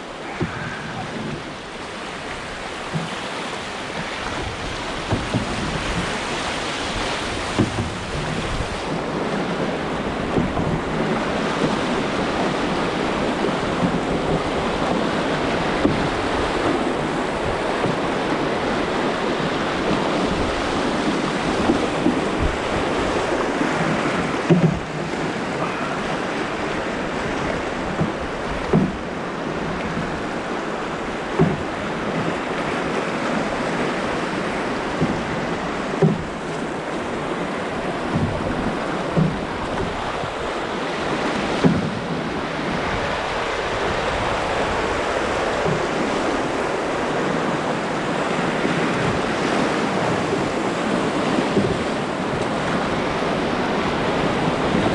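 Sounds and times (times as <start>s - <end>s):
whitewater rushing: 0.0s - 54.9s
short dull knock: 36.0s - 36.3s.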